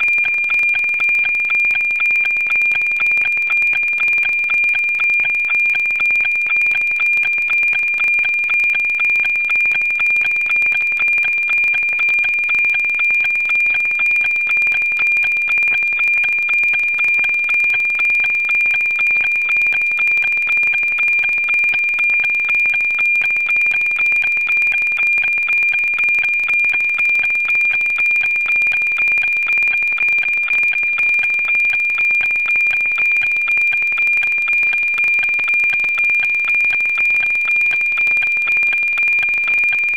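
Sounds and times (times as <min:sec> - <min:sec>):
satellite signal tone with ticking: 0:00.0 - 0:39.9.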